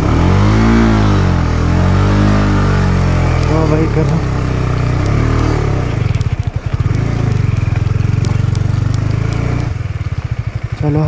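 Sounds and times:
motorcycle engine at low revs: 0.0 - 11.0.

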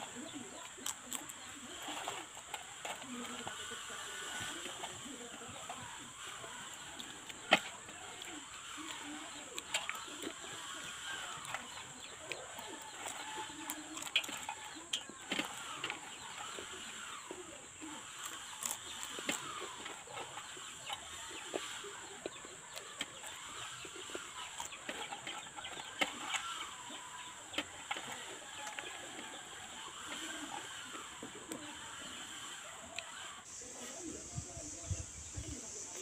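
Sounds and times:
chickens clucking: 0.0 - 36.0.

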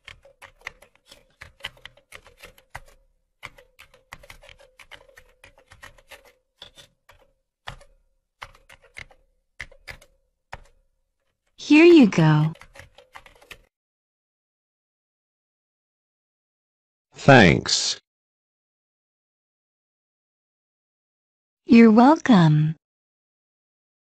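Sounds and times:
rapid clicking: 0.0 - 10.8, 12.5 - 13.7.

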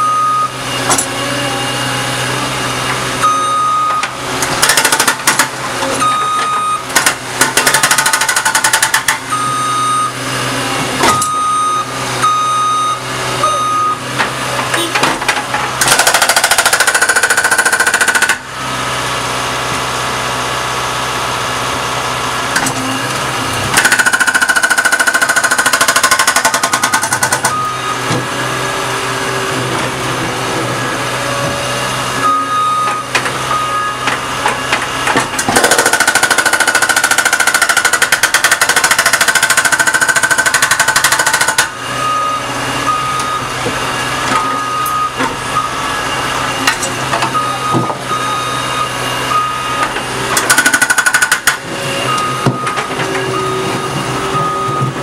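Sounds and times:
skid steer engine running: 0.0 - 55.0
hydraulic breaker hammering asphalt: 3.8 - 9.4, 14.1 - 18.7, 22.5 - 28.3, 32.8 - 42.0, 46.6 - 53.3.

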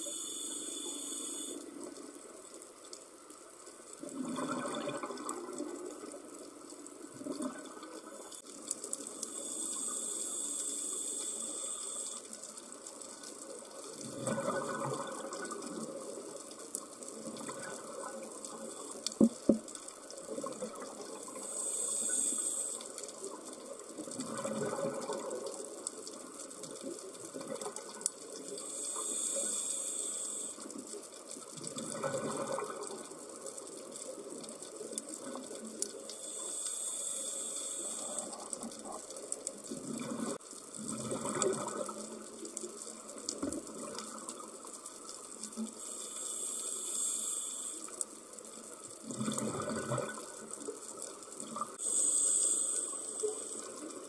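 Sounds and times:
regulator inhalation hiss: 0.0 - 2.4, 8.0 - 14.0, 21.1 - 23.8, 28.2 - 31.0, 33.2 - 39.6, 45.6 - 48.8, 51.8 - 54.0
exhaled air bubbling: 4.0 - 6.2, 14.0 - 16.0, 24.0 - 25.6, 31.5 - 33.4, 34.4 - 44.6, 48.9 - 54.0.

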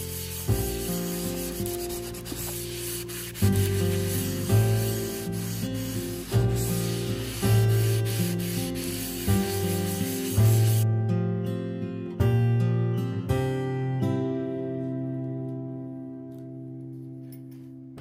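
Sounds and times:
wooden cutlery rubbing: 0.0 - 10.8
background music: 0.0 - 18.0.

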